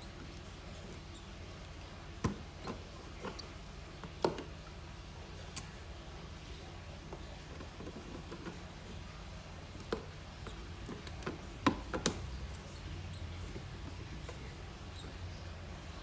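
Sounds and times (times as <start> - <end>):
plastic lid clicks and knocks: 10.9 - 12.2.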